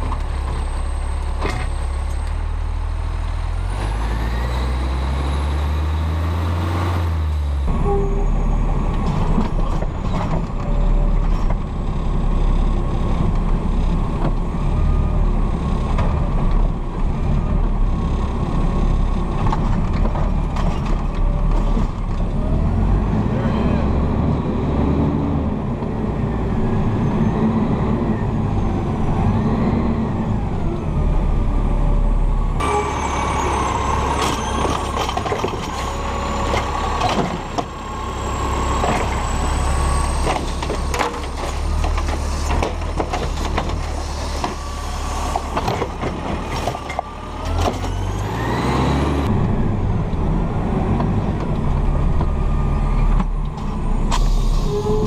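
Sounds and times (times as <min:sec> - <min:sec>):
garbage truck engine revving: 0:03.0 - 0:11.4, 0:21.2 - 0:55.0
trash cart clanking and rattling: 0:07.7 - 0:11.8, 0:19.2 - 0:22.3, 0:32.6 - 0:49.2
hydraulic arm whining: 0:32.6 - 0:49.3.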